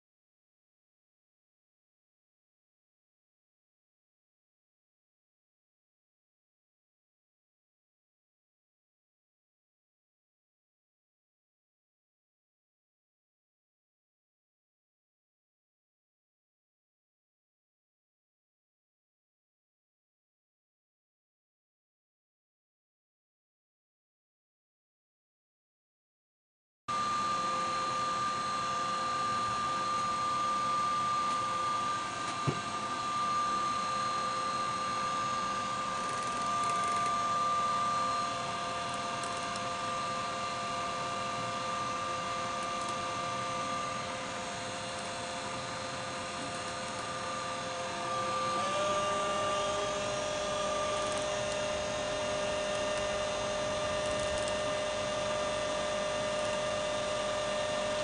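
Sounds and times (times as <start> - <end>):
mixer motor whine: 26.9 - 58.0.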